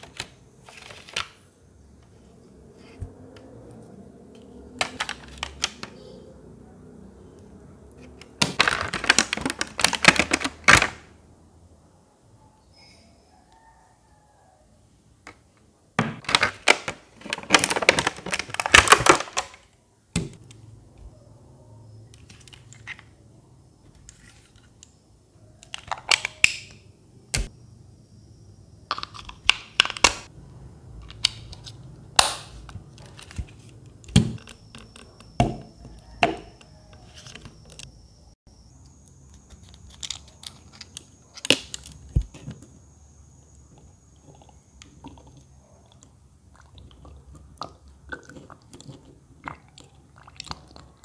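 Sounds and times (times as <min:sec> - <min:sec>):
plastic crinkling and rustling: 0:08.5 - 0:10.9, 0:16.2 - 0:19.6.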